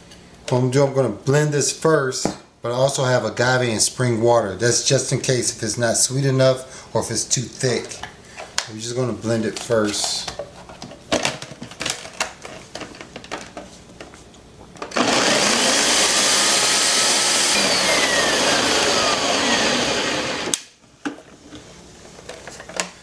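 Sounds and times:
blender motor running: 14.9s - 20.6s.

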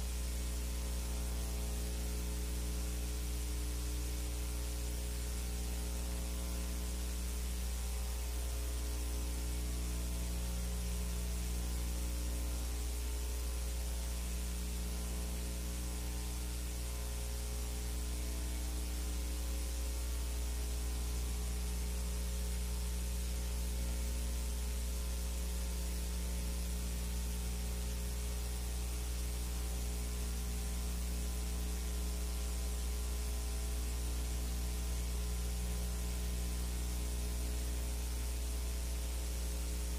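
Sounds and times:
constant hiss: 0.0s - 39.9s
steady electrical hum: 0.0s - 39.9s.

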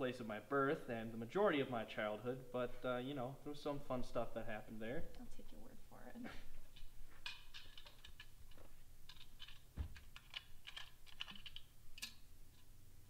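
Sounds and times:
dull thump: 9.8s - 10.0s.

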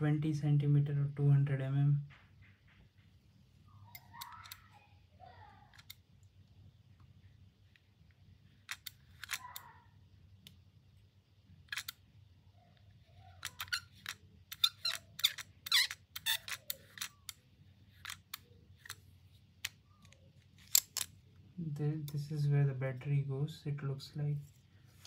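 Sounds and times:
caliper clicking and scraping: 8.6s - 9.6s, 11.7s - 12.0s, 13.4s - 21.2s.

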